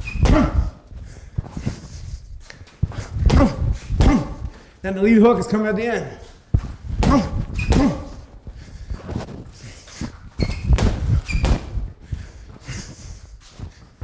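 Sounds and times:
gloves thudding on punching bag: 0:07.0 - 0:08.1, 0:10.7 - 0:11.8.

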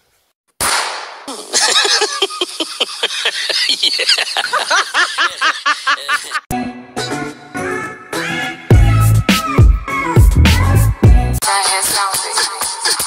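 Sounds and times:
high-pitched laughter: 0:01.3 - 0:06.5.

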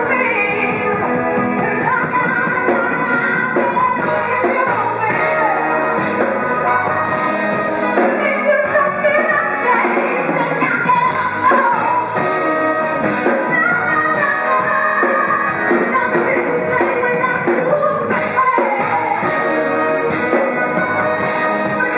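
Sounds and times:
live band playing: 0:00.0 - 0:21.9
woman singing into a microphone: 0:00.0 - 0:21.9.

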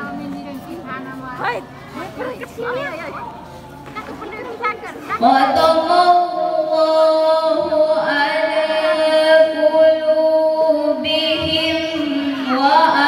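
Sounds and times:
woman chanting melodically: 0:05.2 - 0:13.0.

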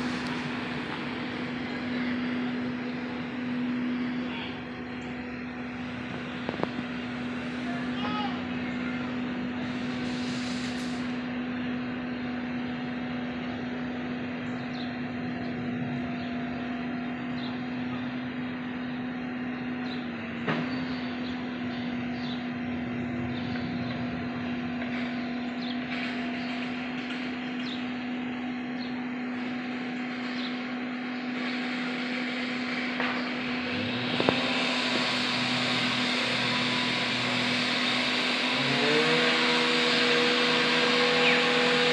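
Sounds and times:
constant low hum: 0:00.0 - 0:41.9.

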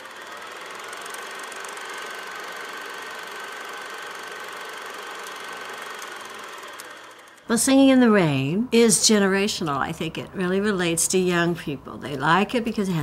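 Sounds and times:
mechanical whirring and rattling: 0:00.0 - 0:07.5.

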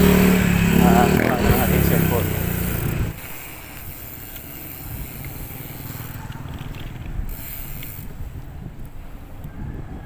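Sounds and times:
road noise: 0:00.0 - 0:10.0
wind buffeting microphone: 0:02.6 - 0:10.0.

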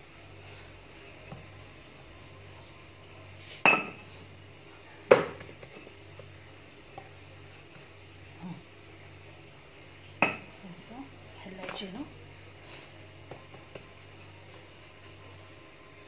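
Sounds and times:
rolling pin knocking on worktop: 0:05.1 - 0:05.6.

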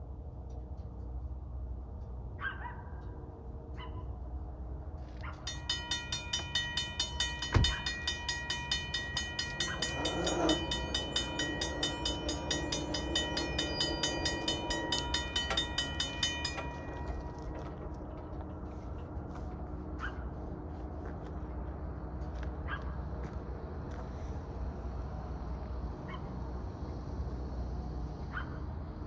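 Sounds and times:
railroad crossing bell ringing: 0:05.4 - 0:20.6.

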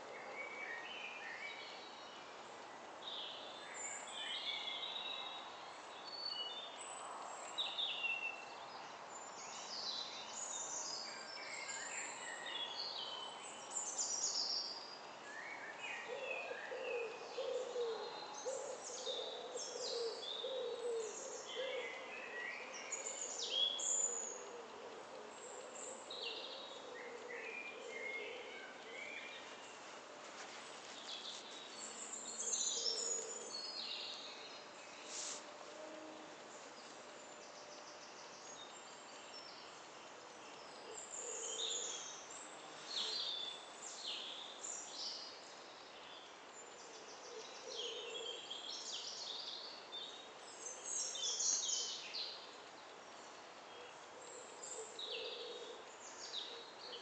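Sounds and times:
faint steady hiss: 0:00.0 - 0:57.0
small birds chirping and singing: 0:25.3 - 0:35.5, 0:36.6 - 0:57.0.

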